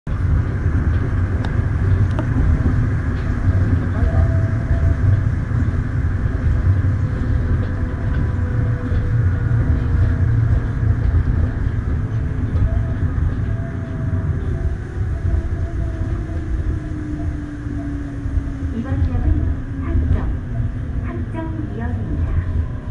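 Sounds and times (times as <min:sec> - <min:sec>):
monorail train low rumble: 0:00.1 - 0:22.9.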